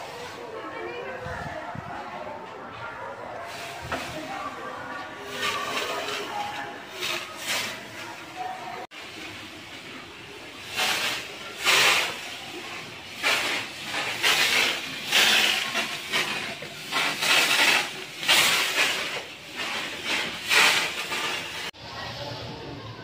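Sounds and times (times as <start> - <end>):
fogging machine hissing puffs: 9.0 - 21.7.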